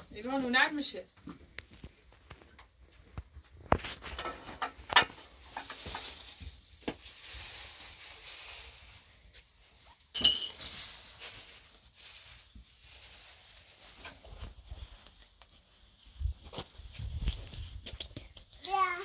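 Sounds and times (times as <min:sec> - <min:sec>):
ringing clink: 0:10.2 - 0:10.6.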